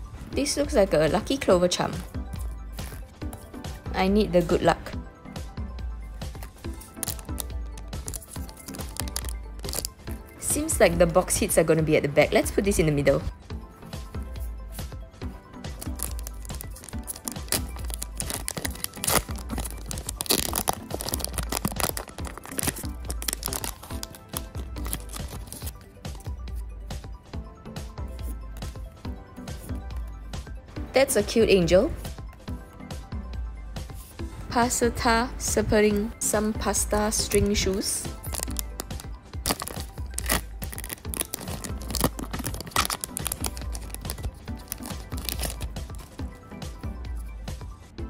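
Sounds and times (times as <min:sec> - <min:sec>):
foil wrapper ripping and crinkling: 0:06.4 - 0:10.0, 0:15.8 - 0:25.7, 0:38.1 - 0:46.1.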